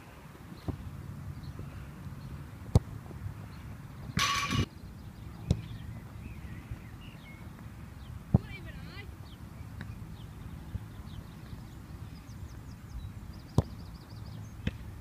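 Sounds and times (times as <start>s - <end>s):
ball striking metal clang: 4.2s - 4.7s
football kicks: 13.5s - 13.8s.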